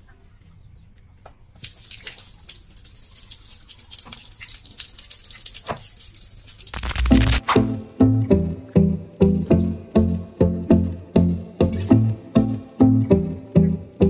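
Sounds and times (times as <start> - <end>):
water splashing and pouring: 1.6 - 7.4
plucked-string music: 7.4 - 14.0.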